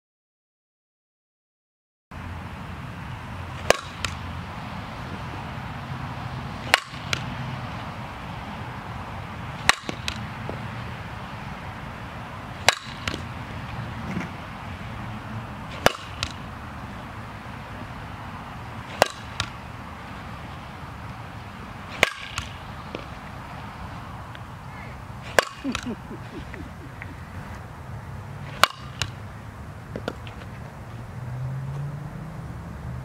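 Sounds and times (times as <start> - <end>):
bat striking ball: 3.6 - 4.3, 6.6 - 7.3, 9.6 - 10.6, 12.6 - 13.3, 15.7 - 16.5, 18.8 - 19.7, 21.8 - 23.2, 25.2 - 27.6, 28.4 - 29.2.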